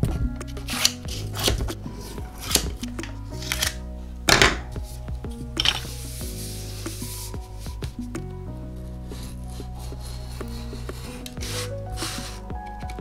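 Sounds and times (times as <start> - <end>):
background music: 0.0 - 13.0
masking tape rustling: 0.0 - 13.0.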